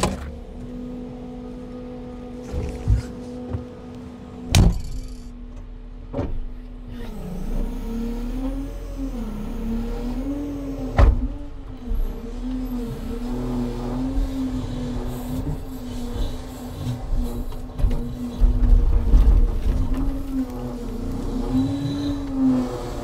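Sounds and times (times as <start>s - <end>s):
diesel truck engine revving: 6.8s - 23.0s.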